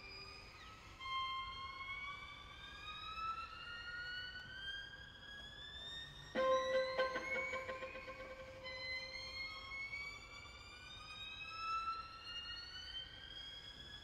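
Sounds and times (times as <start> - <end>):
string quartet glissandi: 6.4 - 9.3.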